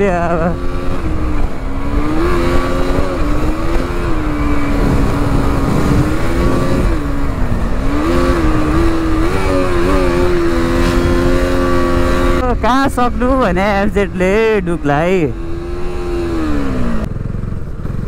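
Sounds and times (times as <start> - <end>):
motorcycle engine revving: 0.0 - 18.0
wind rush on microphone: 0.7 - 14.3.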